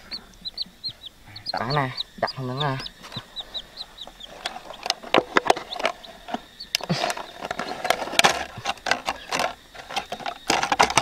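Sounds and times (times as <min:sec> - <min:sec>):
sharp clicks and knocks: 0:04.0 - 0:11.0.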